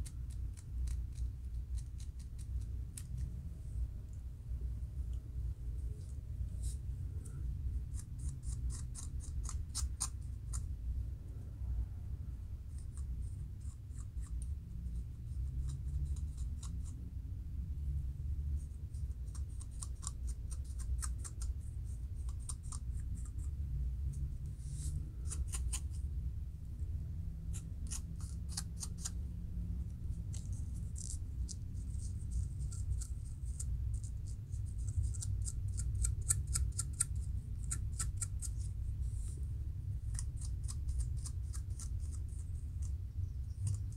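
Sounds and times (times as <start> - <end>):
low steady hum: 0.0 - 43.9
comb scratching scalp: 7.9 - 10.7, 24.6 - 26.0, 27.5 - 29.2, 30.2 - 39.2, 40.1 - 43.9.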